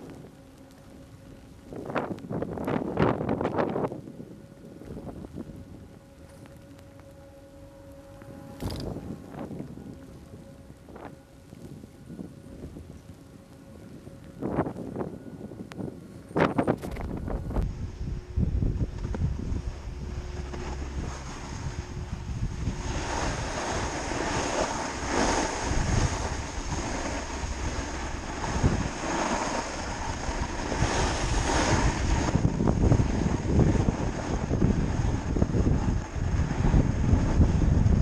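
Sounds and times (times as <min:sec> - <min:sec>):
wind on microphone: 0:00.0 - 0:38.0
snowboard scraping over snow: 0:16.3 - 0:38.0.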